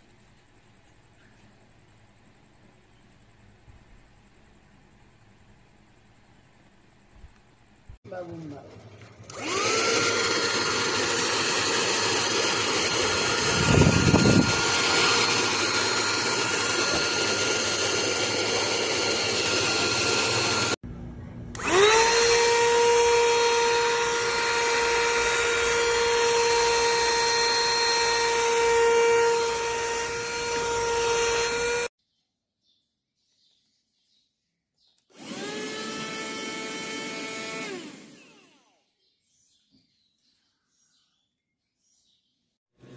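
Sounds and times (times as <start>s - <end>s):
handheld vacuum cleaner whine: 9.2s - 20.8s, 21.5s - 31.9s, 35.1s - 38.9s.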